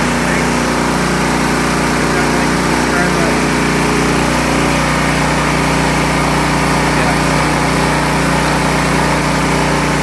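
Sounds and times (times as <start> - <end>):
snowblower engine running: 0.0 - 10.0.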